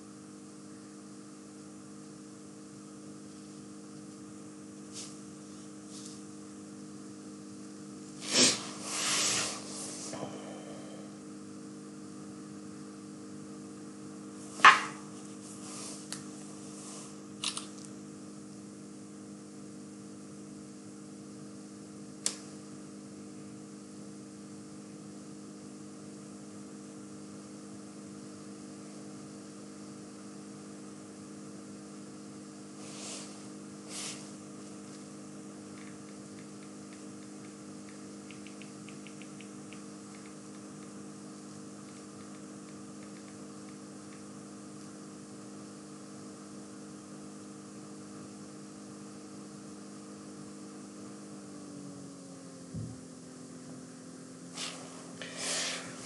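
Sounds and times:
steady electrical hum: 0.0s - 56.0s
hissy puffs: 8.2s - 10.2s, 32.8s - 34.4s, 54.5s - 56.0s
sharp click: 17.4s - 17.9s, 36.9s - 40.4s.

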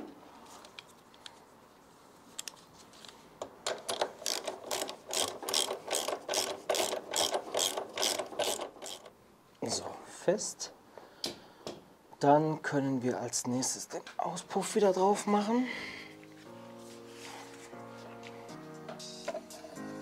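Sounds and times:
ratchet wrench clicking: 3.9s - 9.1s.

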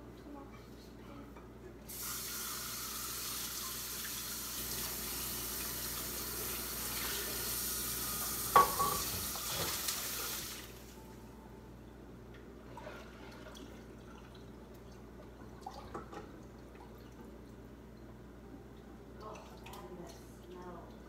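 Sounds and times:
faucet running water into sink: 1.9s - 10.8s.

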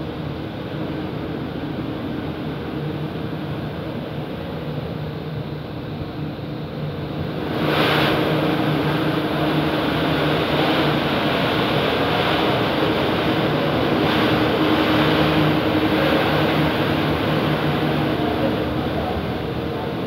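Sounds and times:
machine hum: 6.3s - 20.0s.

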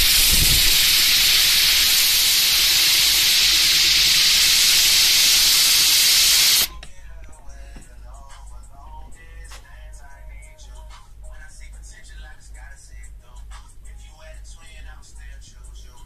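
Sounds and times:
steam engine exhaust hiss: 0.0s - 6.7s.

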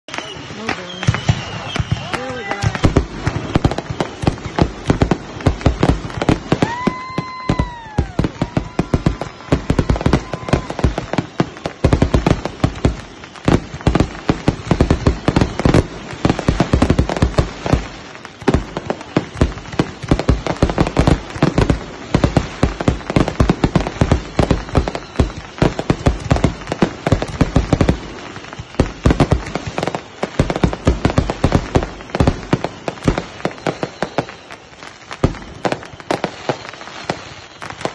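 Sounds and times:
firework whistle: 0.0s - 37.9s
fireworks bangs and crackles: 0.0s - 37.9s.

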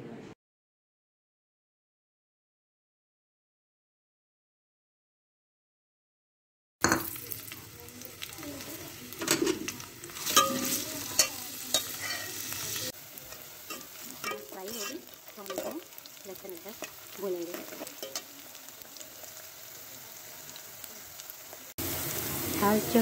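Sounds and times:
onions sizzling in hot oil: 6.8s - 23.0s
metal spoon scraping pot: 9.2s - 15.8s.

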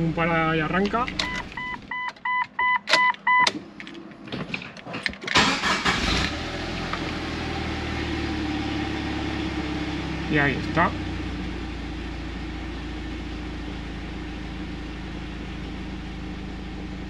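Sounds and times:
car engine cranking and idling: 0.0s - 17.0s
dashboard warning chime beeping: 0.9s - 3.5s.

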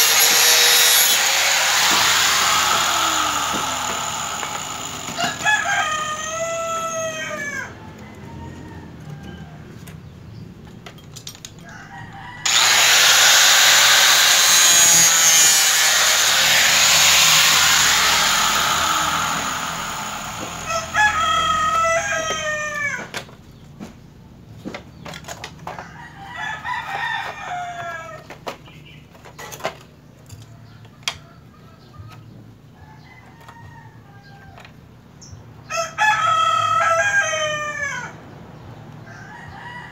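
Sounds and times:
rooster crowing: 5.0s - 9.8s, 11.6s - 13.3s, 17.4s - 23.1s, 25.9s - 28.2s, 35.7s - 38.2s, 39.1s - 39.9s
plastic parts clicking and knocking: 24.6s - 25.8s.

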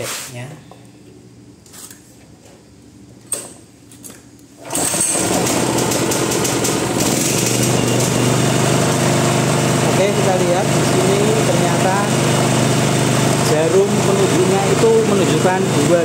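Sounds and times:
generator engine running: 4.6s - 16.0s.

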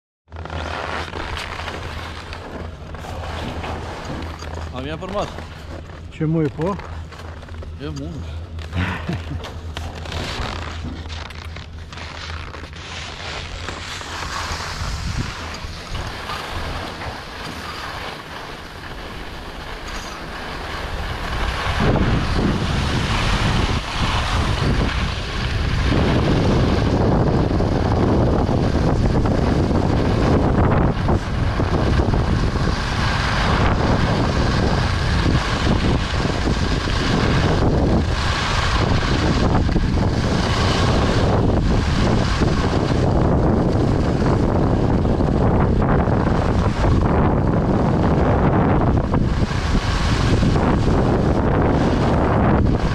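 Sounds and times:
wind rushing over microphone: 0.3s - 52.9s
skis hissing over snow: 11.9s - 52.9s.

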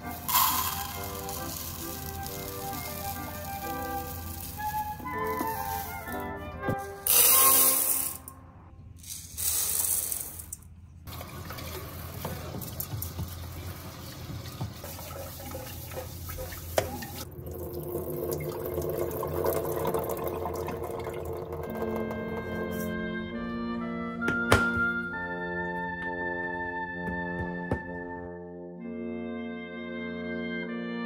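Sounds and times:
tap water running into a pot: 0.0s - 6.2s, 11.1s - 22.7s
water splashing and pot handling: 0.0s - 7.5s, 11.1s - 23.0s
soft background music: 0.0s - 8.8s, 19.8s - 31.0s.

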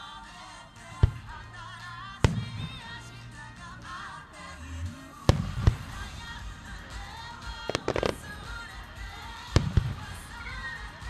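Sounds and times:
background music: 0.0s - 11.0s
crackling firework reports: 1.0s - 11.0s
firework shells bursting: 5.3s - 11.0s.

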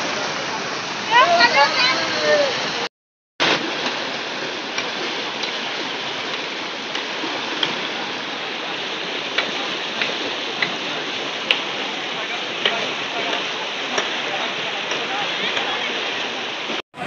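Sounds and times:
floodwater rushing: 0.0s - 17.0s.

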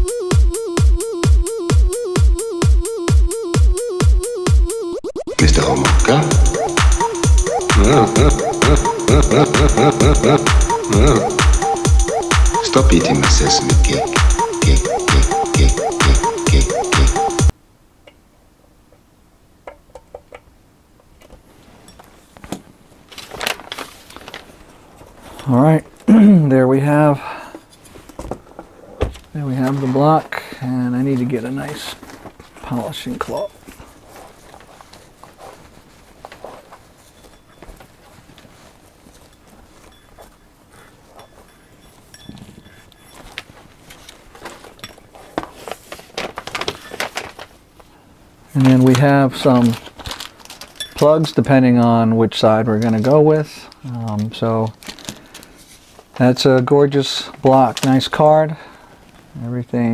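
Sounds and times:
handling noise: 31.0s - 47.9s.

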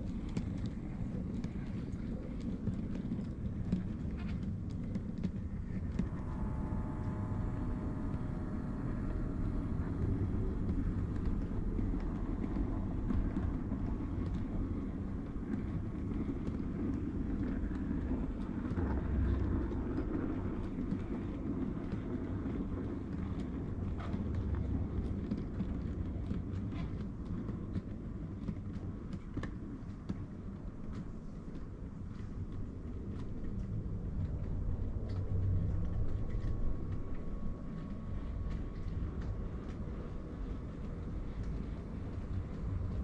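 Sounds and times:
thin whine: 5.7s - 23.3s.

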